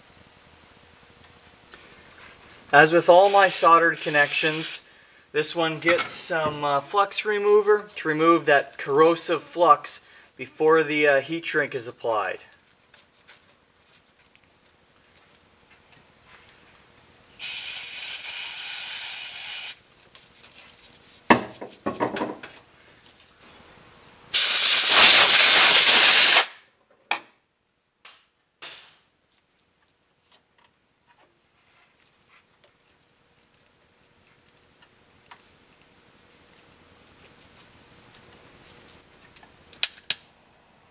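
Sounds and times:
aerosol spray bursts: 0:03.2 - 0:04.8, 0:17.4 - 0:19.8, 0:24.3 - 0:26.6.

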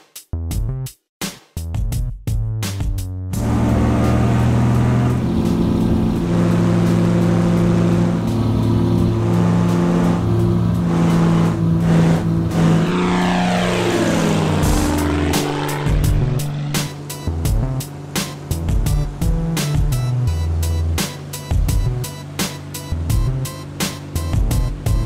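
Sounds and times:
plane passing overhead: 0:03.4 - 0:20.1
propeller aircraft engine drone: 0:03.4 - 0:25.0.

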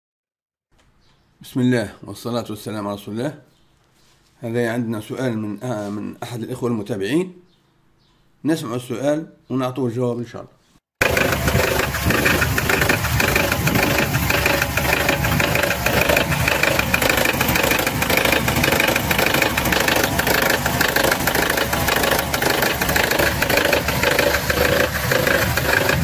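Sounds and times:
petrol engine idling: 0:11.0 - 0:26.0
rapid engine knocking: 0:11.0 - 0:26.0.

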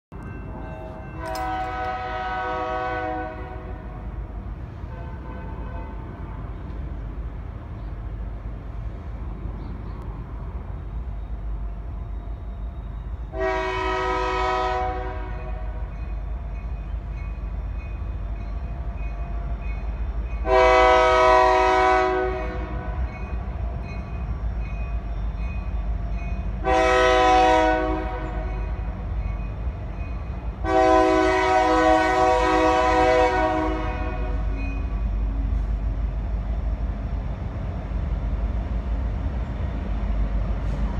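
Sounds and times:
low locomotive rumble: 0:00.1 - 0:40.9
locomotive air horn blasts: 0:00.8 - 0:04.1, 0:04.9 - 0:06.5, 0:13.3 - 0:15.9, 0:20.4 - 0:23.1, 0:26.6 - 0:28.8, 0:30.6 - 0:34.6.

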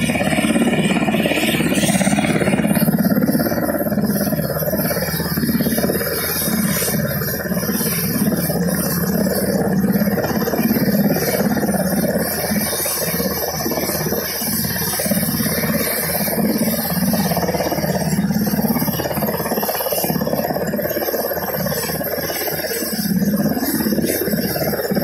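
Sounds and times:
helicopter engine noise: 0:00.0 - 0:25.0
helicopter rotor chop: 0:00.0 - 0:25.0.

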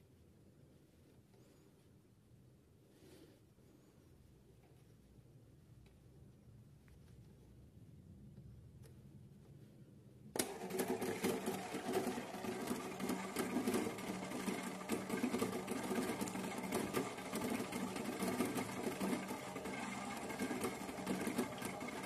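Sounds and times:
toy washing machine motor running: 0:10.4 - 0:22.0.

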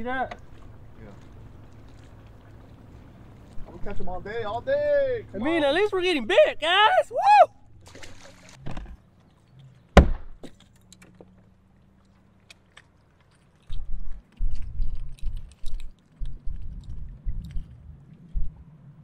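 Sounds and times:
wind buffeting microphone: 0:13.8 - 0:19.0.

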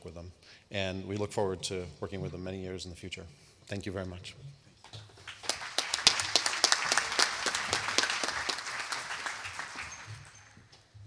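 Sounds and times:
audience applauding: 0:05.1 - 0:10.7.

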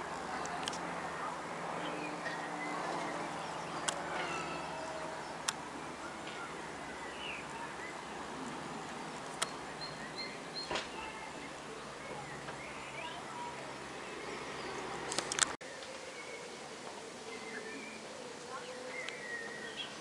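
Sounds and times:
distant propeller aircraft drone: 0:00.0 - 0:20.0
small birds chirping: 0:00.2 - 0:20.0
sharp clicks: 0:15.1 - 0:15.6.

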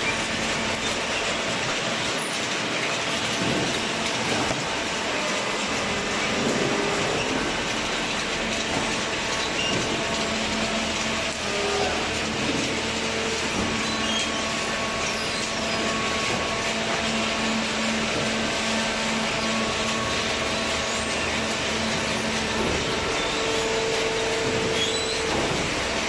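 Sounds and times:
baler machine running with hum: 0:00.0 - 0:26.0.

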